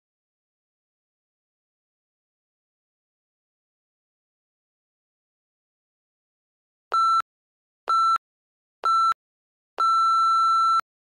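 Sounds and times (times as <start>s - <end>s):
timer short beeps: 8.9s - 9.2s, 9.8s - 10.8s.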